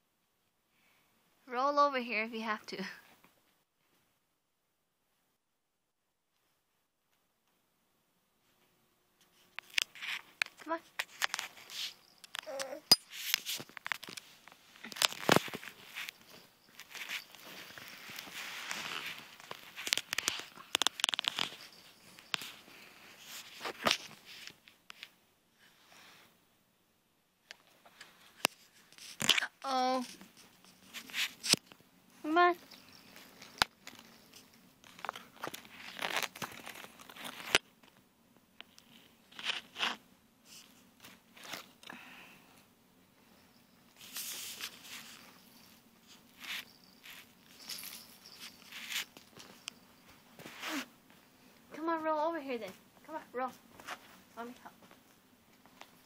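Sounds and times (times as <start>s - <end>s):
rustling: 8.4s - 26.3s, 27.5s - 38.0s, 38.6s - 42.3s, 43.2s - 56.0s
sharp crackles and clicks: 9.5s - 22.6s, 32.4s - 38.0s.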